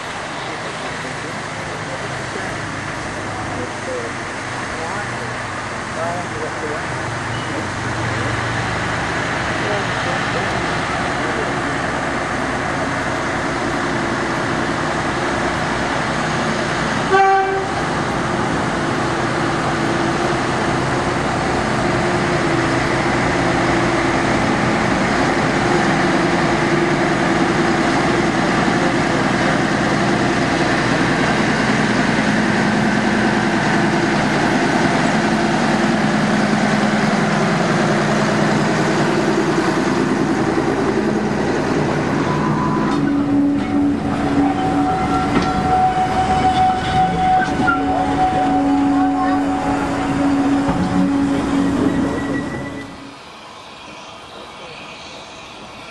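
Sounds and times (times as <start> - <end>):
diesel locomotive running: 0.0 - 55.9
locomotive horn toot: 17.1 - 17.9, 42.3 - 53.1.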